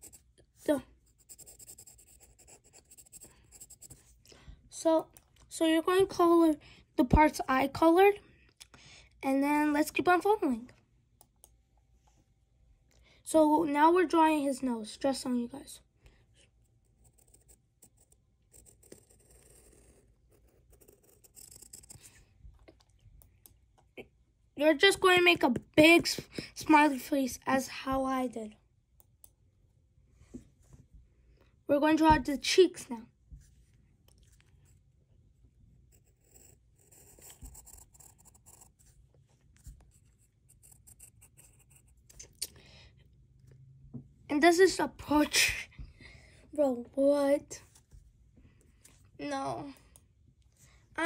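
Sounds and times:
pencil scratching on paper: 0.0 - 4.2, 16.3 - 22.4, 35.7 - 42.3.

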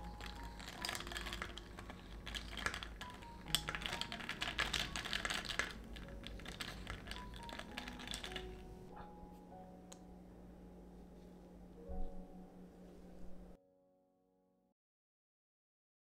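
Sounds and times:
ice cubes clinking in a glass: 0.0 - 8.7.

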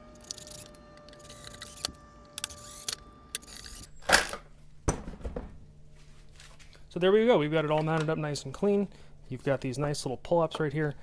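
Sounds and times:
cordless drill motor whine: 0.0 - 4.0.

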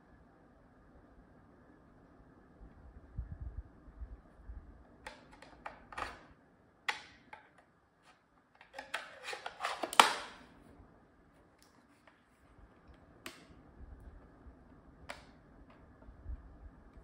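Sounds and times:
plastic cover snapping shut: 8.6 - 10.4.

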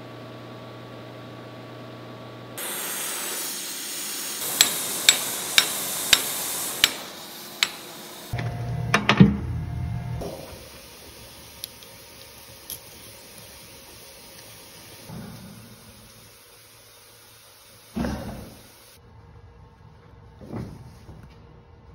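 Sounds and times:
steady hiss: 2.6 - 8.4, 10.2 - 19.0
hammer striking hot steel: 2.6 - 9.2.

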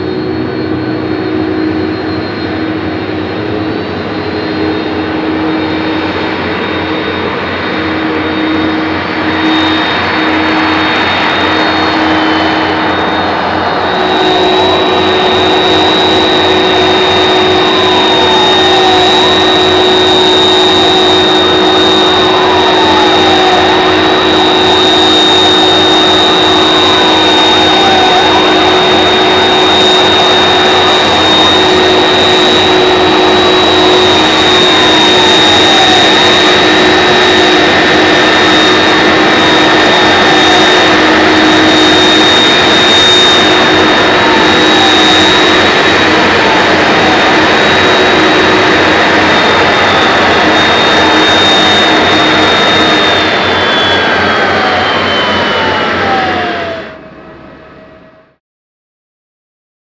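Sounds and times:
jet engines rumbling and whining: 0.0 - 58.4.

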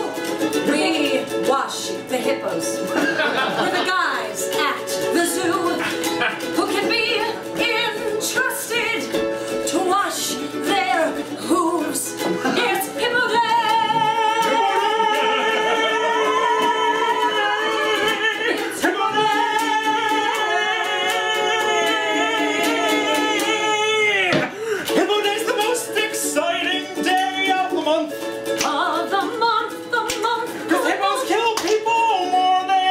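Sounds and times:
ukulele: 0.0 - 32.9
man singing: 11.4 - 29.2, 30.6 - 32.9.

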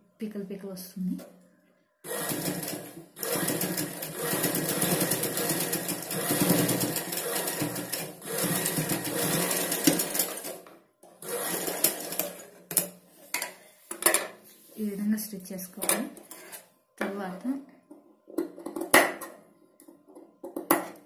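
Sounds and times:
sewing machine stitching: 2.1 - 10.6, 11.2 - 12.8.

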